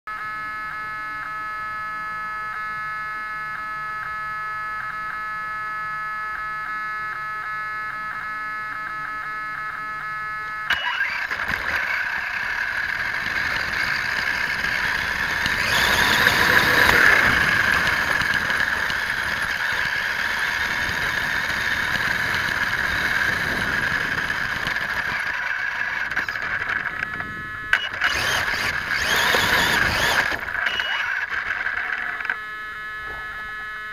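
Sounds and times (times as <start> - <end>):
rc truck motor whine: 0.1 - 33.9
tyre and chassis noise: 10.7 - 33.9.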